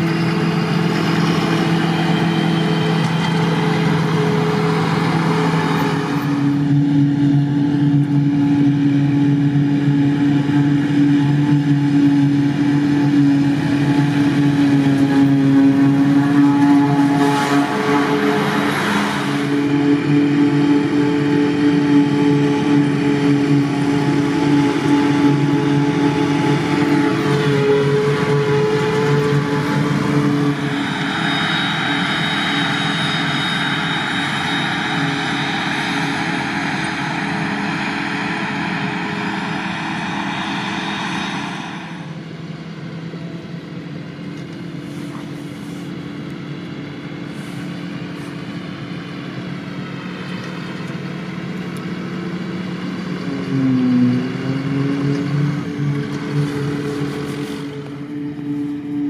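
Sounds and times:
forage harvester engine: 0.0s - 59.0s
tractor driving by: 0.0s - 59.0s
tractor engines: 0.0s - 59.0s
hiss of chopped grass blowing: 44.8s - 46.1s, 47.2s - 48.5s.

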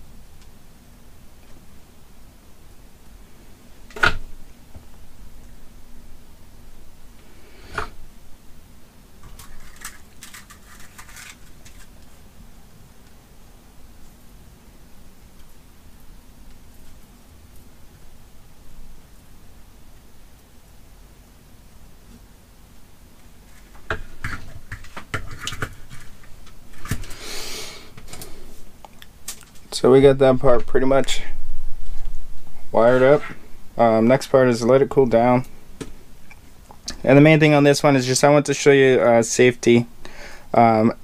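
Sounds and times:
light clicks and rattles: 9.2s - 12.1s
brief hiss: 27.1s - 28.5s.

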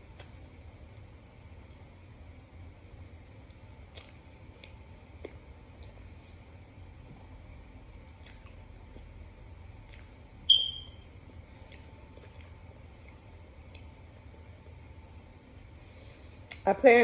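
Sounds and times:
chewing and crunching: 3.4s - 9.2s, 9.8s - 10.2s, 11.5s - 14.0s
high-pitched chirp: 10.5s - 11.0s.

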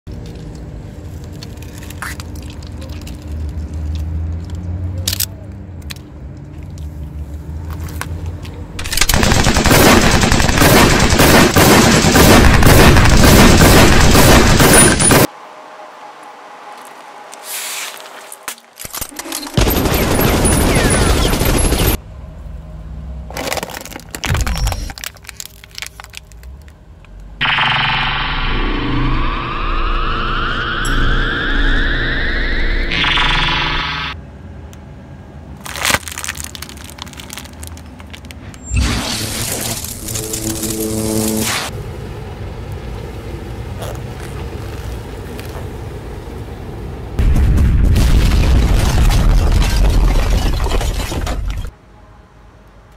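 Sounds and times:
slow-moving car rumble: 0.1s - 8.8s, 22.0s - 27.4s, 39.8s - 47.2s
objects crackling under tyre: 0.1s - 11.2s, 23.3s - 27.4s, 35.6s - 38.7s, 42.6s - 46.6s
sharp cracks: 8.8s - 15.3s
synthetic sweeping tones: 27.4s - 34.2s, 38.7s - 41.7s.

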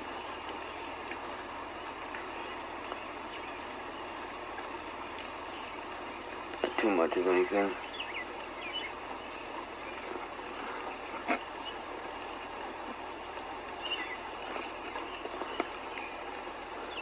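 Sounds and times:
steady rain: 0.0s - 17.0s
bird chirps: 5.4s - 12.6s, 13.8s - 17.0s.

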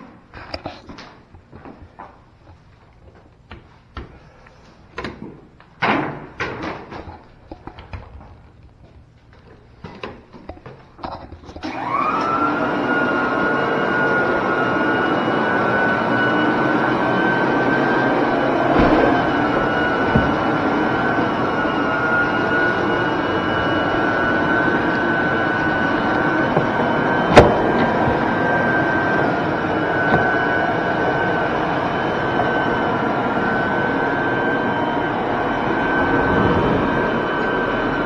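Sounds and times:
floor burnisher motor whining: 11.0s - 38.0s.

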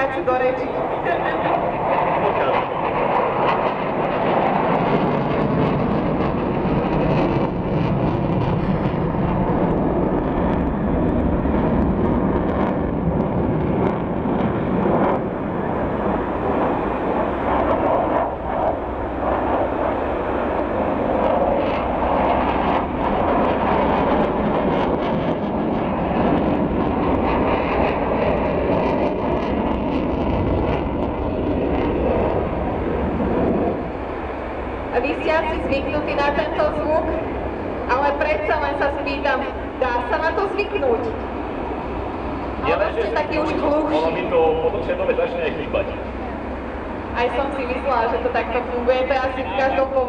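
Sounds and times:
fighter jets rumbling overhead: 0.0s - 50.0s.

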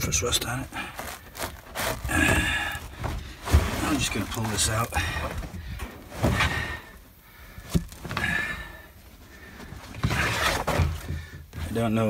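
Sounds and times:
carpet tearing: 0.3s - 5.4s, 10.0s - 11.0s.

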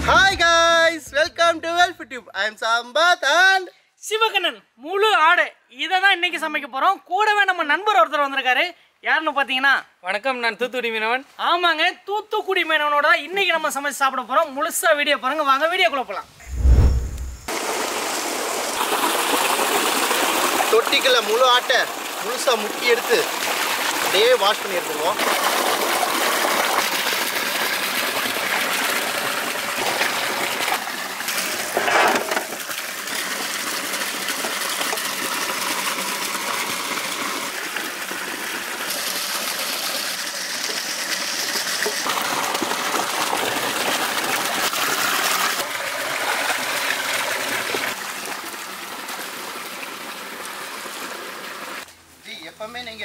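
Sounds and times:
water gushing and splashing in a tank: 17.5s - 51.9s.

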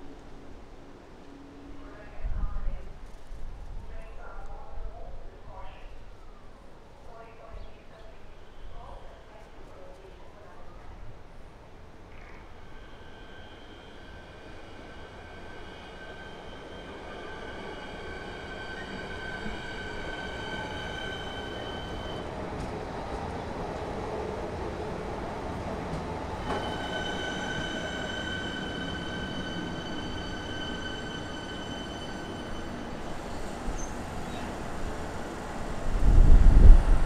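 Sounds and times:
electric train rumbling: 11.6s - 37.0s.

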